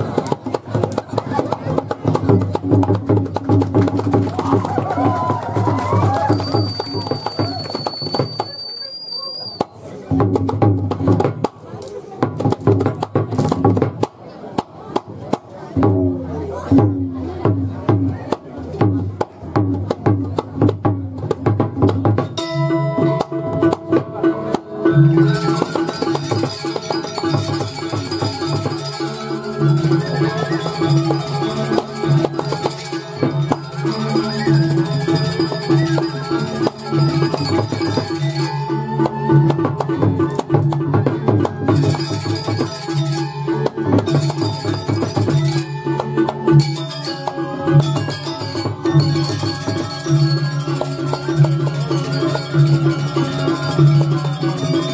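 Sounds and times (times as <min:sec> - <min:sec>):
drum strokes: 0:00.0 - 0:08.6, 0:09.6 - 0:14.1, 0:15.0 - 0:54.9
gamelan pitched tones: 0:02.3 - 0:09.3, 0:22.1 - 0:54.9
ringing metallophones and gongs: 0:04.8 - 0:08.8, 0:22.2 - 0:54.9.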